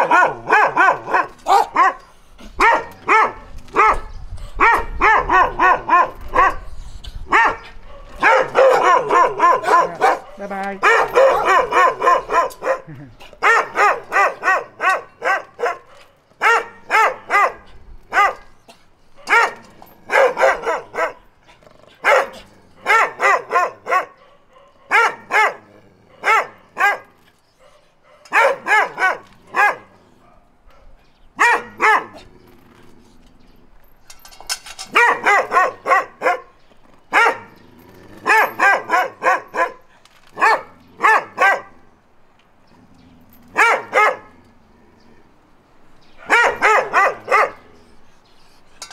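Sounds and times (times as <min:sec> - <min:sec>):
dog barking: 0:00.0 - 0:02.0, 0:02.6 - 0:06.6, 0:07.3 - 0:18.5, 0:19.2 - 0:21.2, 0:22.0 - 0:32.2, 0:34.9 - 0:36.5, 0:37.1 - 0:37.5, 0:38.3 - 0:39.8, 0:40.4 - 0:41.8, 0:43.6 - 0:44.3, 0:46.2 - 0:47.6.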